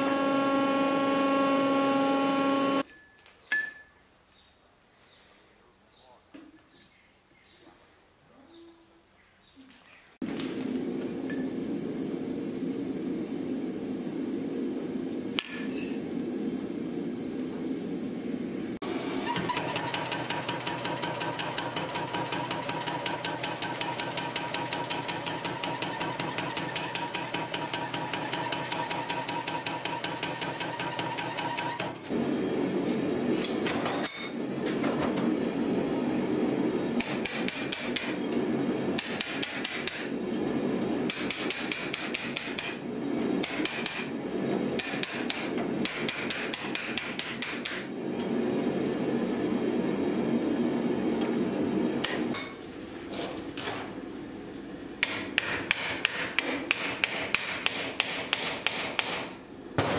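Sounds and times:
power hammer pounding steel: 0:19.5 - 0:32.0, 0:37.0 - 0:38.2, 0:39.0 - 0:40.1, 0:41.0 - 0:42.8, 0:43.4 - 0:44.1, 0:44.8 - 0:47.9, 0:55.0 - 0:59.9
hand hammer striking chisel: 0:44.8 - 0:47.8, 0:55.0 - 0:59.3.

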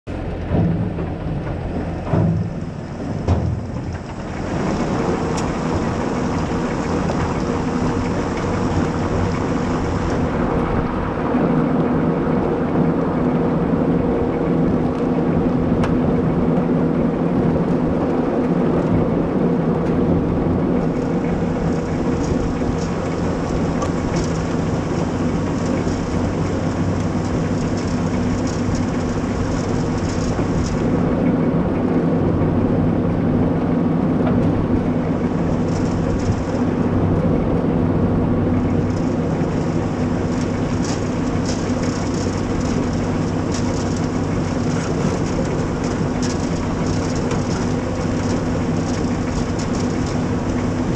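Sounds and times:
machinery drone: 0:00.1 - 0:50.9
soil and carrots rattling: 0:00.2 - 0:10.5, 0:20.8 - 0:31.1, 0:34.8 - 0:50.9
knocks: 0:00.4 - 0:04.0.

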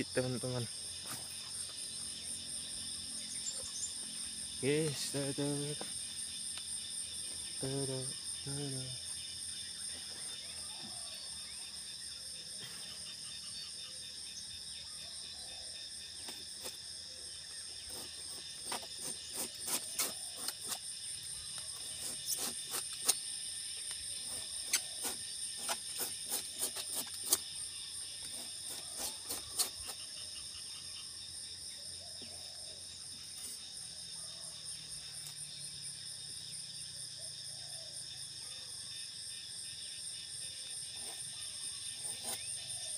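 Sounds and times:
insects shrilling: 0:17.7 - 0:30.5, 0:40.9 - 0:42.9.

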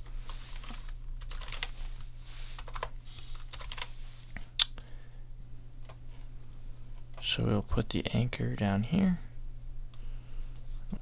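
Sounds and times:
typing on computer keyboard: 0:00.6 - 0:01.8, 0:02.6 - 0:03.9.

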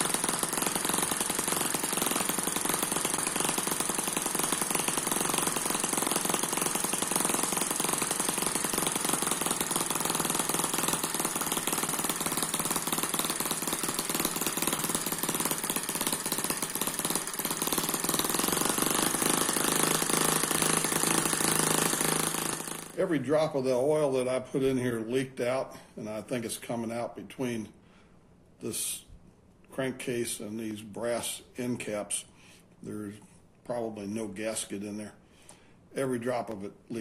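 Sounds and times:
miniature engine running: 0:00.0 - 0:23.0.

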